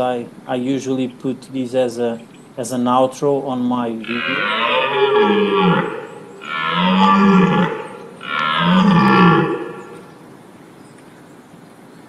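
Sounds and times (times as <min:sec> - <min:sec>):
deer stag roaring: 0:04.0 - 0:10.1.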